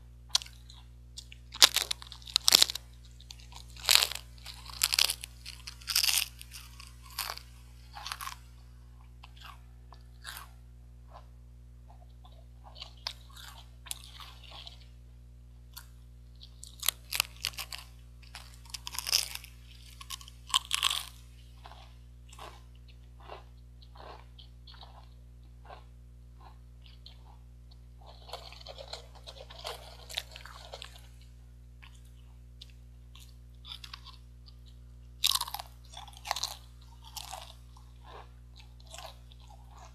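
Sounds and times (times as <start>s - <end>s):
chewing: 0.3s - 11.3s, 11.9s - 14.9s, 15.7s - 39.9s
crisps crunching: 0.3s - 11.3s, 11.9s - 14.9s, 15.7s - 39.9s.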